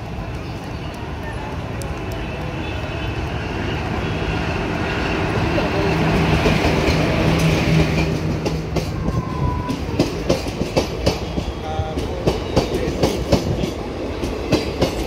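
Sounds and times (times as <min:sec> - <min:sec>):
electric locomotive hum: 0:00.0 - 0:15.0
train wheels clacking over rail joints: 0:05.9 - 0:15.0.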